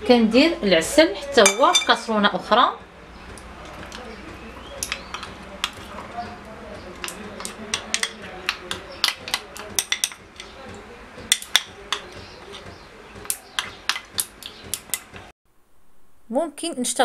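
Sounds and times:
metal spoon clinking on saucepan: 1.4s - 2.1s, 7.0s - 10.6s.

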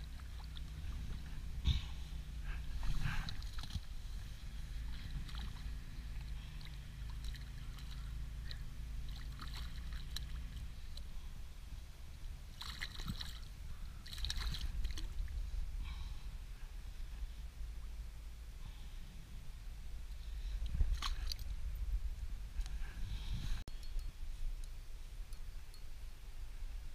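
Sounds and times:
steady low hum: 0.0s - 26.9s
fish splashing at water surface: 6.5s - 10.6s, 12.5s - 15.2s.

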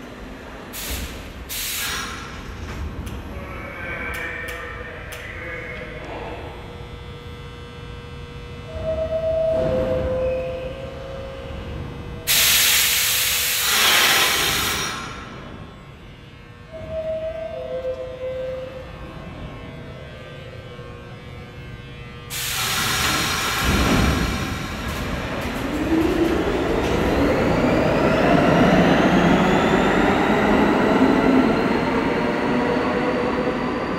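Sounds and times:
train brakes air hiss: 0.7s - 2.5s, 12.3s - 15.3s, 22.3s - 24.8s
wheels rumbling on rails: 22.9s - 33.9s.

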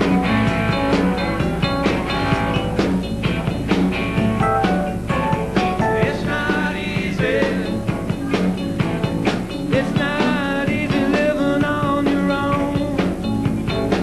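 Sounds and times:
live rock band playing: 0.0s - 14.0s
wavering lead melody: 4.3s - 6.4s.

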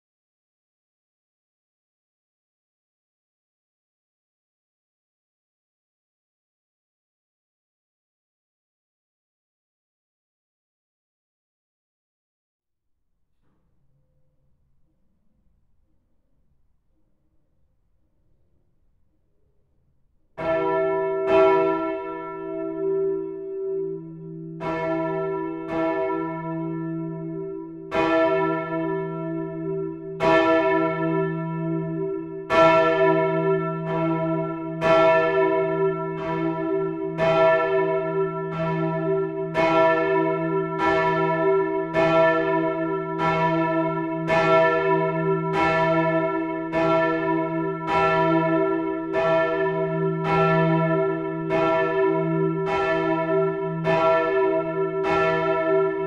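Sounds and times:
church bells ringing in a peal: 20.4s - 56.0s.

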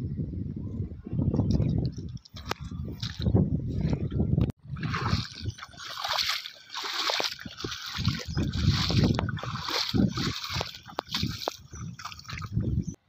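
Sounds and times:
bare feet splashing through water: 4.7s - 12.7s.

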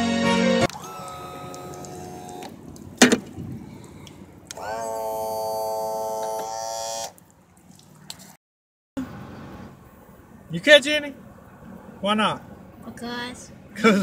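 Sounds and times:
electric pump motor whine: 0.6s - 7.2s.

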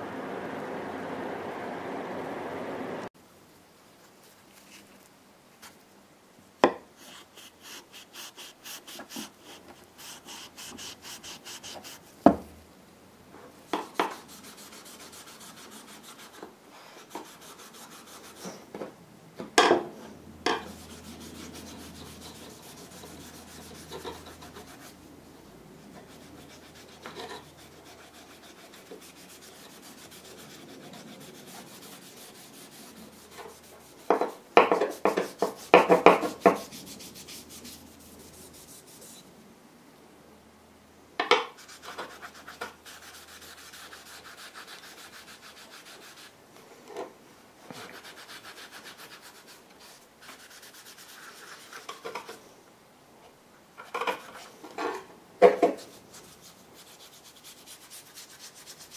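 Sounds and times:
sharp knocks and scrapes: 13.4s - 19.0s, 19.6s - 25.0s, 25.9s - 39.3s, 41.2s - 44.8s, 49.8s - 52.5s, 53.8s - 56.4s
steel wool scrubbing metal: 13.8s - 18.5s, 20.5s - 25.0s, 25.9s - 39.3s.

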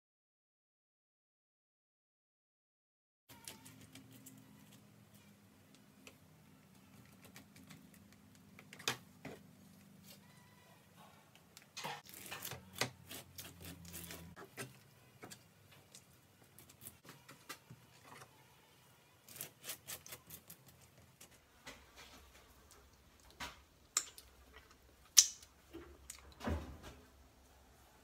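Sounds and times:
scraper scratching wax: 12.0s - 14.8s, 19.2s - 20.9s.

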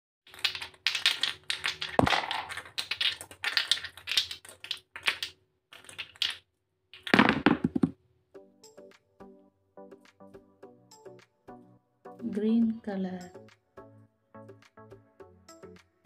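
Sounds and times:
plastic bottles clattering: 0.3s - 6.4s, 7.0s - 8.0s.

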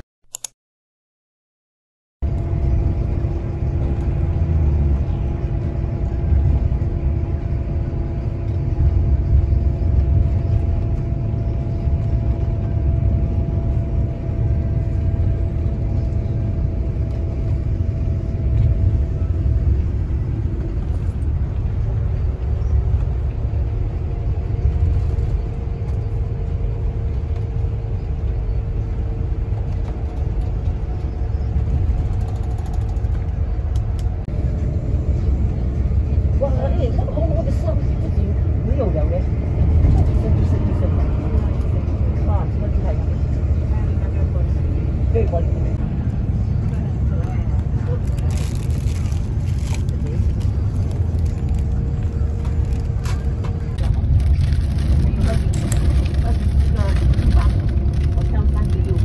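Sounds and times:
deep road rumble: 2.2s - 59.0s.

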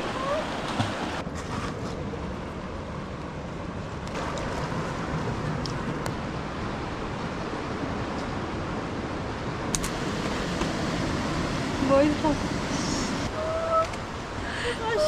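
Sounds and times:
fast-flowing river rushing: 0.0s - 1.2s.

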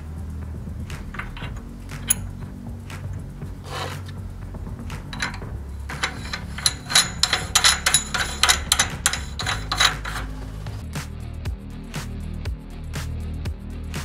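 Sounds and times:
metallic clicks and scrapes of nut: 0.8s - 4.2s, 4.8s - 10.6s.

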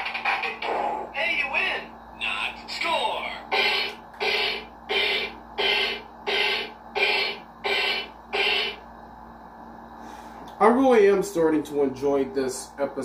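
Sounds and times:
buzzy electronic beat from toy: 3.5s - 8.8s.

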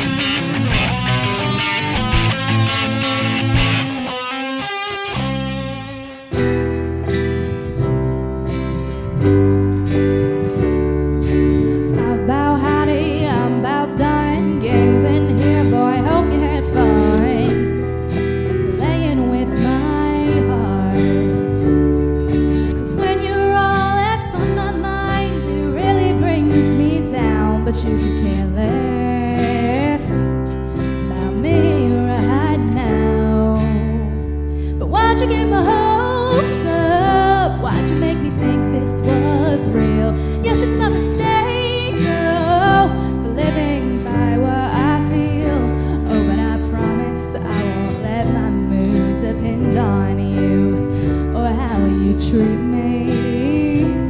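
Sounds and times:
strummed acoustic guitar: 0.0s - 54.0s
woman singing: 11.7s - 17.8s, 18.5s - 21.9s, 22.7s - 54.0s.

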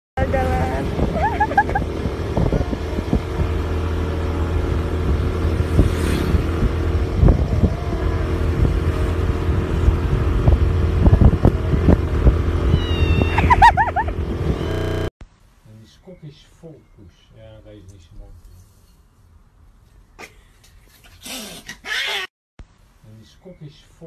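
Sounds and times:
wind buffeting microphone: 0.2s - 3.8s, 5.0s - 14.6s
motorcycle engine running: 0.2s - 15.1s
high wavering cries: 12.7s - 15.1s.

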